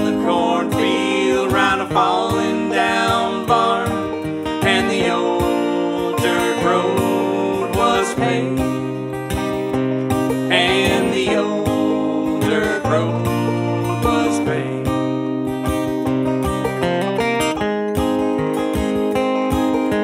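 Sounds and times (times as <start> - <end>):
person singing: 0.0 - 9.0, 10.5 - 15.1
acoustic guitar: 0.0 - 20.0
banjo: 0.0 - 20.0.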